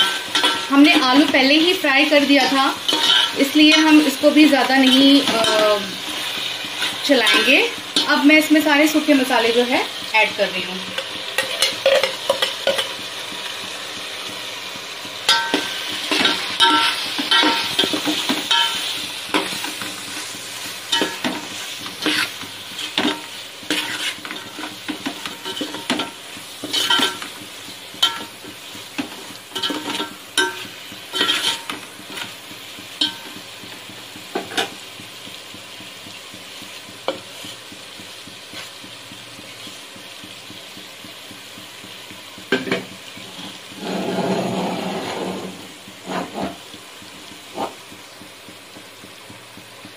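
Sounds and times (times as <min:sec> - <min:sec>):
vegetables sizzling in oil: 0:00.0 - 0:49.9
spoon scraping a steel pot: 0:02.9 - 0:04.0, 0:20.9 - 0:27.3, 0:29.0 - 0:32.3, 0:43.3 - 0:46.6.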